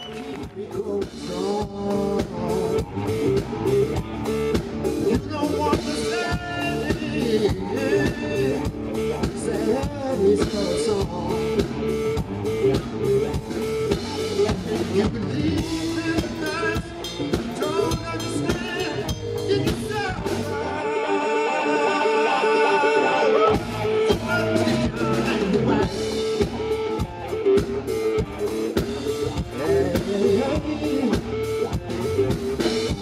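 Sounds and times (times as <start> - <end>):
drums: 0.0 - 21.0, 22.6 - 33.0
bass guitar: 0.0 - 33.0
slide steel guitar solo: 2.9 - 10.0.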